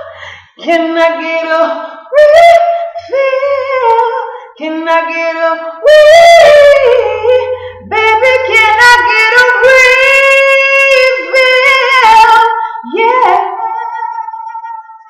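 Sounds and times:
woman singing wordless notes: 0:00.0 - 0:15.0.

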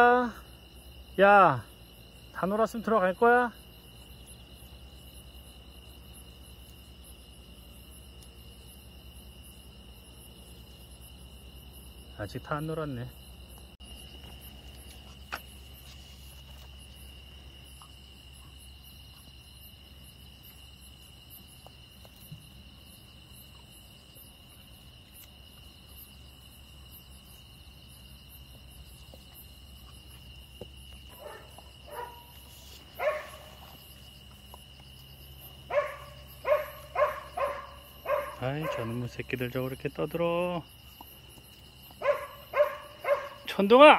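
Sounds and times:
crickets chirping: 0:00.0 - 0:43.9
dogs barking: 0:31.1 - 0:33.8, 0:35.6 - 0:39.1, 0:41.9 - 0:43.6.

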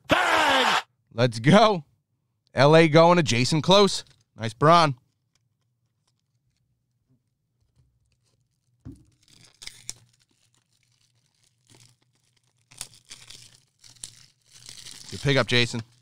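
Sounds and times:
wrapper crinkling: 0:05.1 - 0:07.0, 0:07.7 - 0:16.0
foil pack tearing open: 0:08.0 - 0:16.0.

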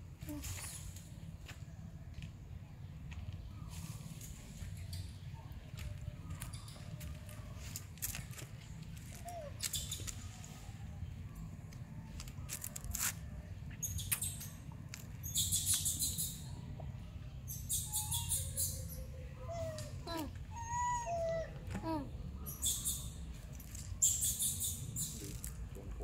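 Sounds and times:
low outdoor rumble: 0:00.0 - 0:24.1, 0:24.7 - 0:26.0
high chirping: 0:13.8 - 0:16.6, 0:17.5 - 0:19.1, 0:22.4 - 0:23.3, 0:24.0 - 0:25.5
short squeaky calls: 0:17.6 - 0:20.0.

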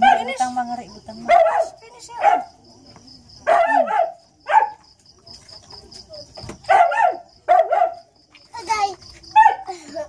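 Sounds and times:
crickets chirping: 0:00.0 - 0:10.0
dog yelping: 0:03.5 - 0:04.8, 0:09.4 - 0:09.7.

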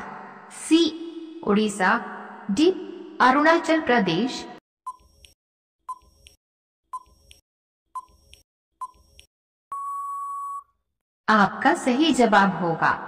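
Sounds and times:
short electronic beeps: 0:04.9 - 0:05.1, 0:09.7 - 0:10.7
long steady beep: 0:09.7 - 0:10.7.

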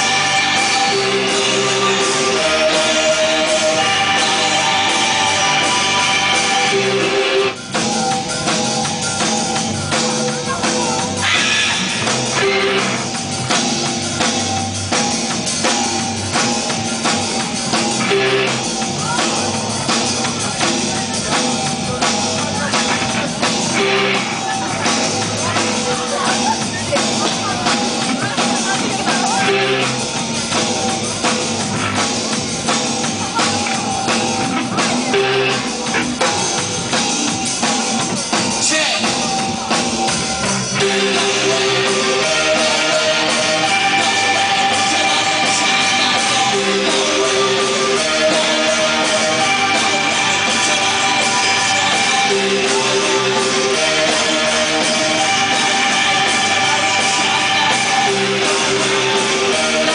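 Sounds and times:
busy drumming: 0:00.0 - 0:59.9
live rock band playing: 0:00.0 - 0:59.9
repeating guitar riff: 0:00.0 - 0:59.9.

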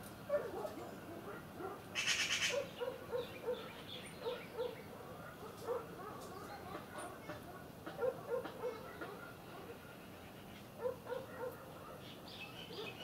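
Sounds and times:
bird rasping call: 0:02.0 - 0:04.8
short low bird calls: 0:02.0 - 0:04.9.

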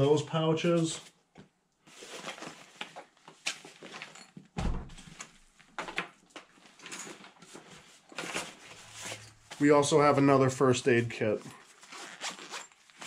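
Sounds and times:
fabric and plastic rustling: 0:00.8 - 0:10.4, 0:11.3 - 0:13.0
dull thump: 0:04.6 - 0:05.0.

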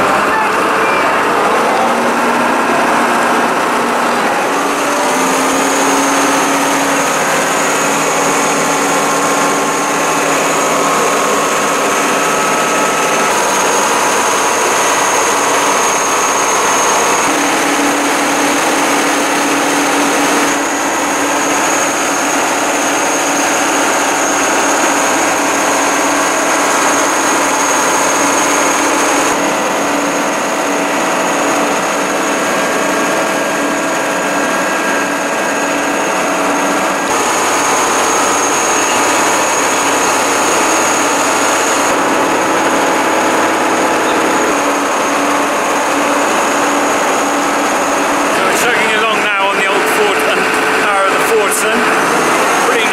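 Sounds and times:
high whine: 0:00.0 - 0:52.9
tractor engine running: 0:00.0 - 0:52.9.

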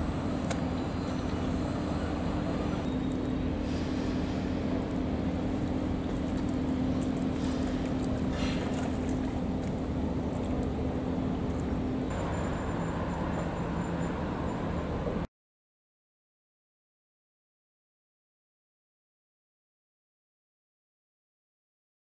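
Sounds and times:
low engine hum: 0:00.0 - 0:15.3
outdoor noise: 0:00.0 - 0:15.3.

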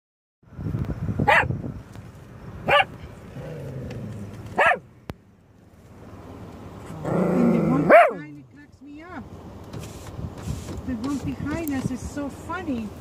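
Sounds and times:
dog barking: 0:01.3 - 0:01.5, 0:02.6 - 0:03.0, 0:04.6 - 0:04.9, 0:07.9 - 0:08.2.

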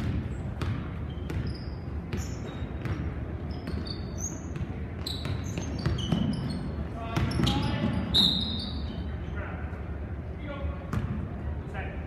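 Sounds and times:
basketball bouncing on wood floor: 0:00.0 - 0:03.9, 0:04.5 - 0:06.5, 0:07.1 - 0:07.9
sneakers squeaking: 0:00.0 - 0:09.7, 0:10.8 - 0:11.4.

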